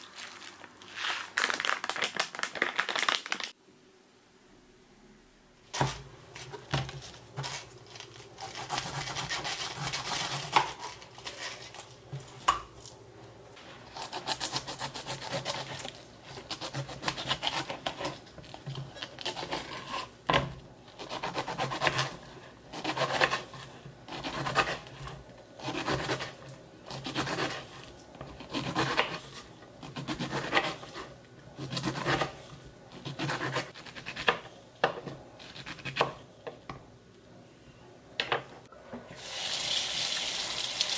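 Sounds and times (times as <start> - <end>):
knife cutting pineapple: 5.8 - 12.9, 13.9 - 32.4.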